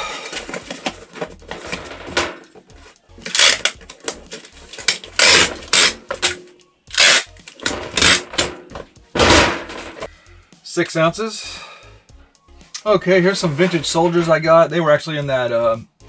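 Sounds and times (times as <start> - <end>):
packing tape ripped off tape gun: 3.2 - 8.6.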